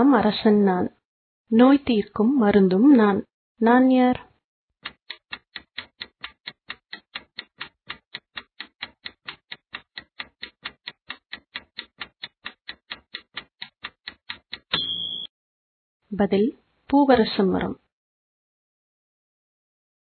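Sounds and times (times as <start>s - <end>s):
clock ticking rapidly: 4.8s - 15.3s
short high beep: 14.7s - 15.3s.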